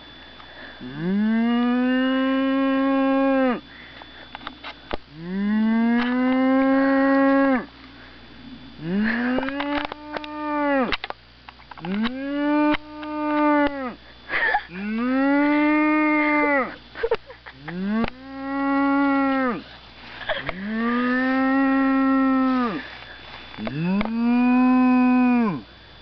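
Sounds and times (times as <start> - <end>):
man imitating cow moo: 0.8 - 3.6, 5.1 - 7.7, 8.8 - 11.0, 11.9 - 14.0, 14.7 - 16.8, 17.6 - 19.6, 20.4 - 22.8, 23.6 - 25.7.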